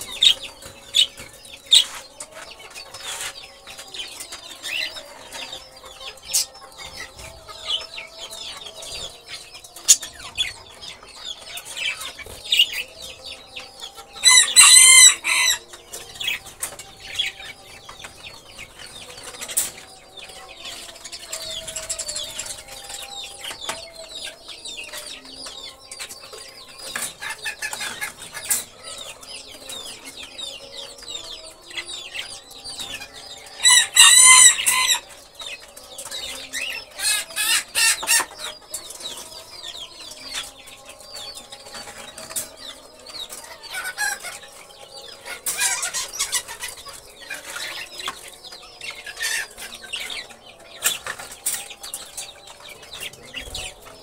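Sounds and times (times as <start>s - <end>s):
parrots chirping and chattering: 9.2s - 18.3s, 33.0s - 35.1s, 43.2s - 54.0s.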